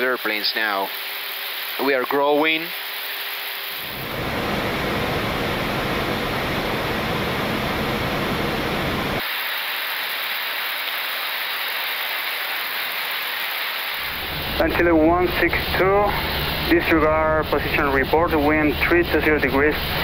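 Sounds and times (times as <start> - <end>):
airliner cabin airflow rushing: 3.9 - 9.2.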